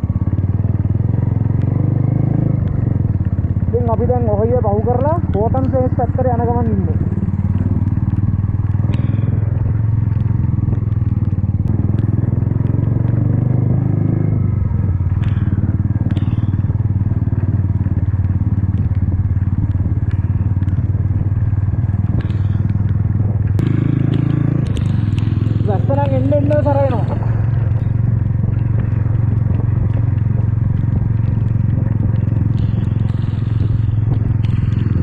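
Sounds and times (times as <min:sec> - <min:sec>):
motorcycle engine running: 0:00.0 - 0:35.0
sharp clicks: 0:04.9 - 0:06.1, 0:18.1 - 0:35.0.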